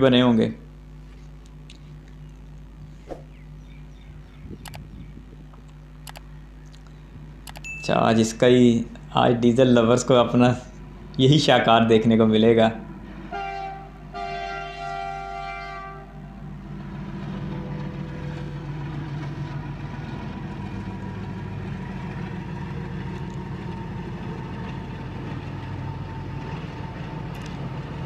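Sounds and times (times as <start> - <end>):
diesel engine droning: 0.0 - 28.0
locomotive horn blasts: 13.2 - 16.5.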